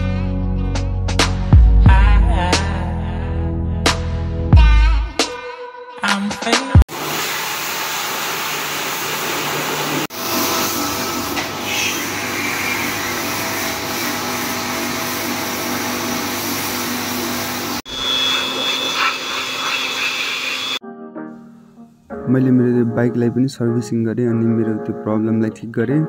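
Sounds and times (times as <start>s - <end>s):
pressure washer motor hum: 6.9s - 20.8s
water jet spraying: 6.9s - 20.8s.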